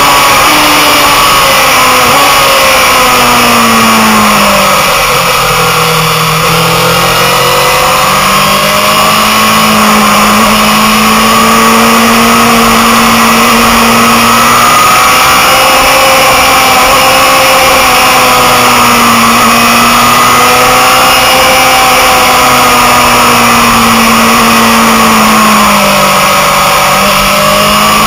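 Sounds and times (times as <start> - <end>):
motorcycle engine: 0.0 - 28.0.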